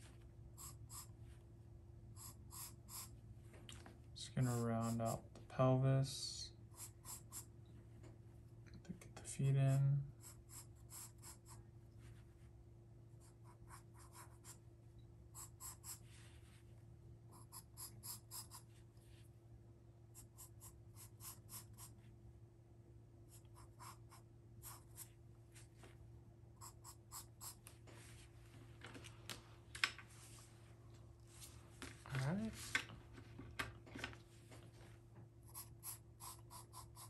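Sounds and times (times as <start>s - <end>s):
faint low hum: 0.0s - 37.0s
pencil strokes on paper: 15.4s - 16.6s, 20.2s - 22.0s.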